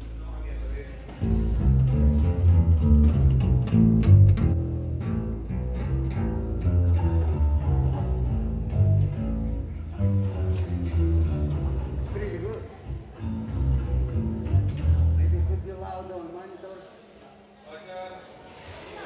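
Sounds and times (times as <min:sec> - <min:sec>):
plucked deep bass notes: 0:01.2 - 0:15.7.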